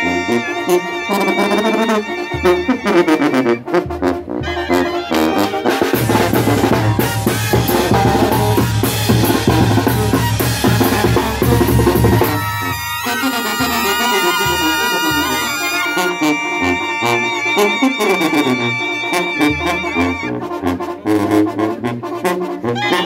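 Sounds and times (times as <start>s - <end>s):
brass band playing: 0.0s - 23.0s
low tuba line: 0.0s - 23.0s
bass drum and cymbal beat: 2.2s - 16.9s.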